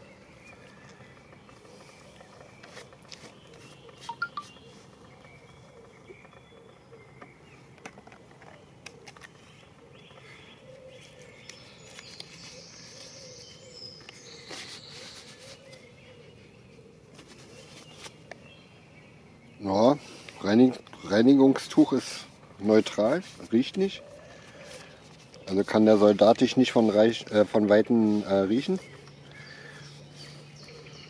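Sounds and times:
small handling clicks: 0:07.1 - 0:10.3.

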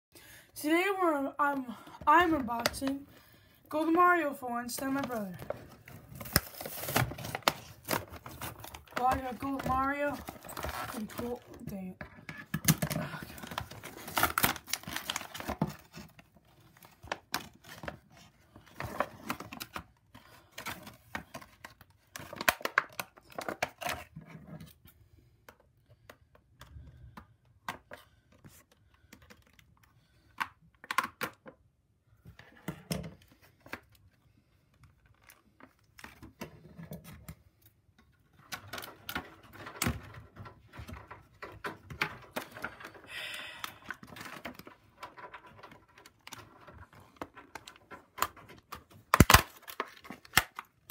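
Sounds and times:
plastic packaging crinkling: 0:04.8 - 0:11.7, 0:12.8 - 0:19.7, 0:41.4 - 0:50.9
cardboard tearing: 0:06.0 - 0:11.4, 0:12.9 - 0:17.8.

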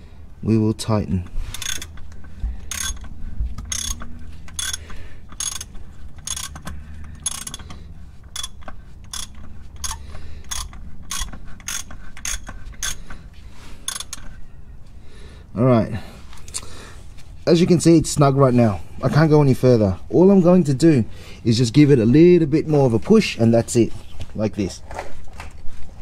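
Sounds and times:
ratchet wrench clicking: 0:01.4 - 0:13.2, 0:13.8 - 0:14.4.

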